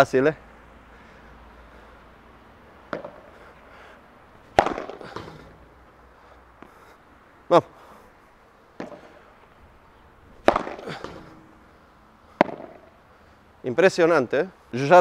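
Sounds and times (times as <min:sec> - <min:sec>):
ball knock: 0:02.9 - 0:03.3, 0:04.5 - 0:05.6, 0:08.8 - 0:09.2, 0:10.4 - 0:11.5, 0:12.4 - 0:13.0
racket smashing ball pop: 0:02.9 - 0:03.3, 0:04.4 - 0:05.7, 0:08.8 - 0:09.2, 0:10.4 - 0:11.5, 0:12.4 - 0:13.0.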